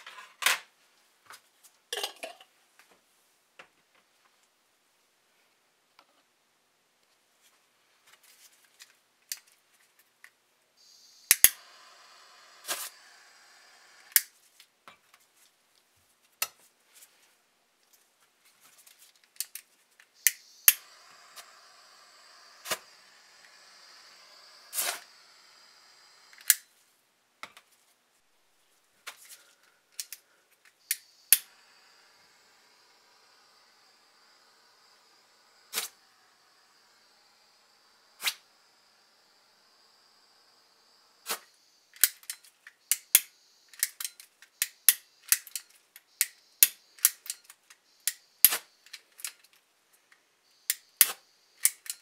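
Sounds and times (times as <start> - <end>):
gas torch hissing: 10.8 - 14.3, 20.2 - 26.7, 30.8 - 44.0.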